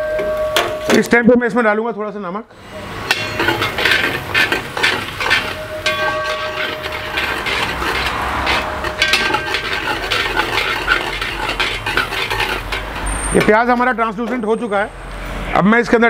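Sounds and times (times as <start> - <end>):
metal spatula scraping pan: 2.6 - 14.6
onions sizzling: 2.8 - 13.6.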